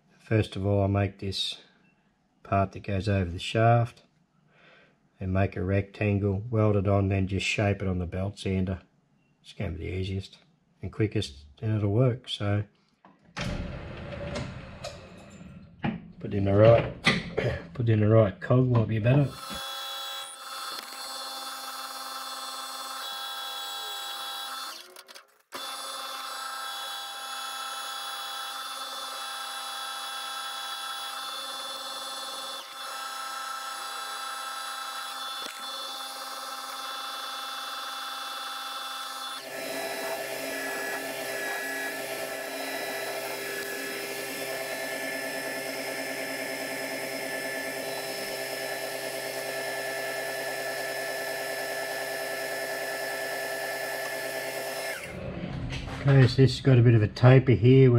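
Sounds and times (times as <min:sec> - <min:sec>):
metal lathe whining: 0:19.3 - 0:55.2.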